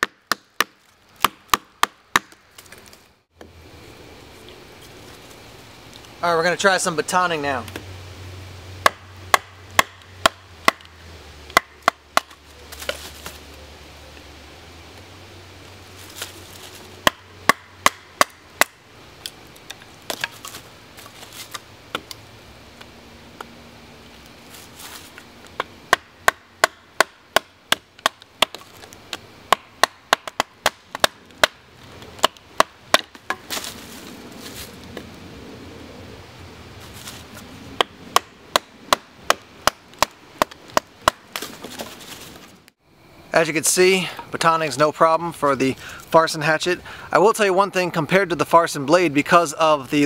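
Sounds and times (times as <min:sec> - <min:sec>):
baton striking hatchet: 0:00.0 - 0:02.4, 0:08.8 - 0:10.9, 0:11.5 - 0:12.4, 0:17.0 - 0:18.8, 0:25.6 - 0:28.7, 0:29.5 - 0:31.6, 0:32.2 - 0:33.6, 0:37.8 - 0:41.6
wood stick splitting: 0:00.0 - 0:03.6, 0:08.8 - 0:13.5, 0:16.0 - 0:22.2, 0:24.2 - 0:33.9, 0:37.8 - 0:42.4.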